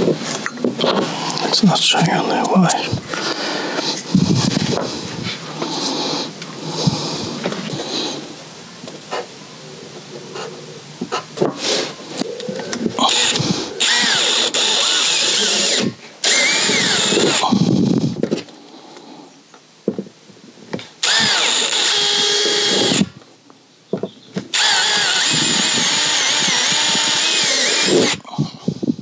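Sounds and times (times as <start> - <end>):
cordless drill drilling plastic: 13.0 - 17.6, 21.0 - 23.2, 24.5 - 28.2.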